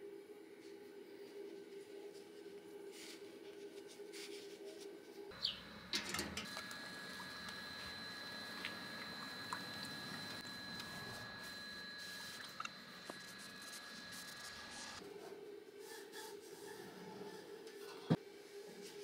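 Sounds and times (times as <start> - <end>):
faint high whine: 5.3 - 15.0.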